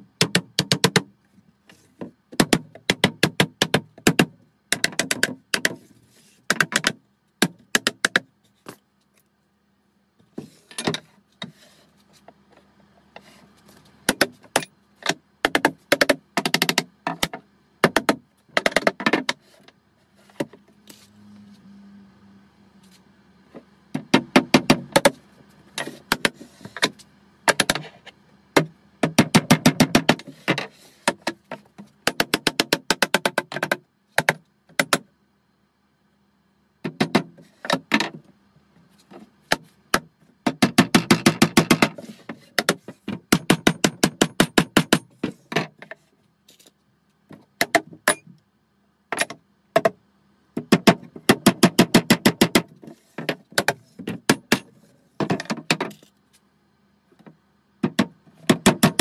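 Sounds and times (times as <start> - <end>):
hammer tapping wood: 15.4 - 19.4.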